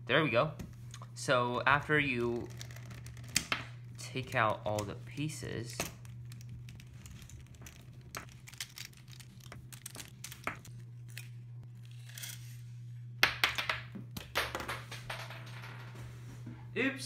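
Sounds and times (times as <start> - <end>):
steady low hum: 0.0 - 17.0
plastic piece clattering: 5.8 - 11.2.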